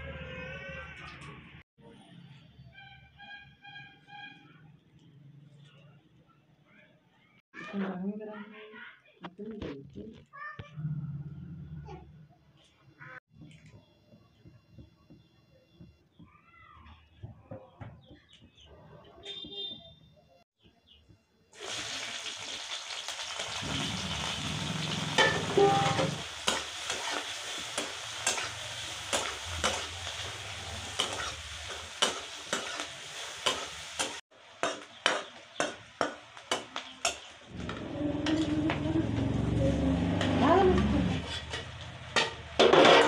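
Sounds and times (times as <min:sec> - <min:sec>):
onions sizzling in a pan: 0:21.6 - 0:43.0
metal spatula scraping and tapping pan: 0:25.2 - 0:39.3, 0:40.2 - 0:43.0.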